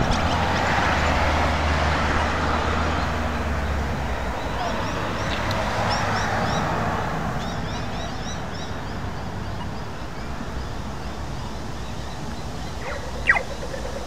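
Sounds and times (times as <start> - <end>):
car driving past: 0.0 - 9.0
bird chirping: 7.4 - 14.0.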